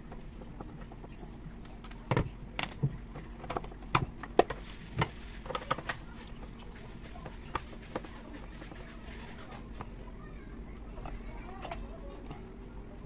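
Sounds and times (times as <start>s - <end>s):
plastic parts clicking and knocking: 0.0s - 6.0s.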